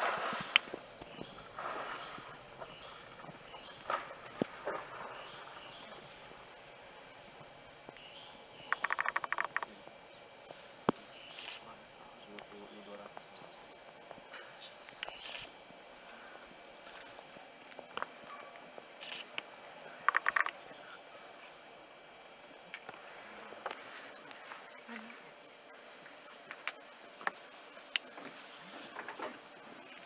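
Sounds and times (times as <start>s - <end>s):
insects droning: 0.0s - 30.0s
sharp clicks: 19.0s - 20.6s.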